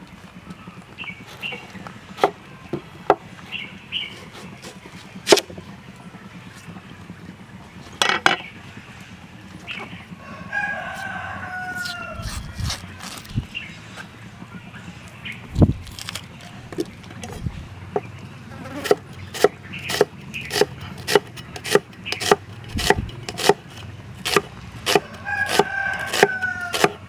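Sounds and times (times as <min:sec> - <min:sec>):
rooster crowing: 0:10.2 - 0:12.9, 0:24.9 - 0:27.0.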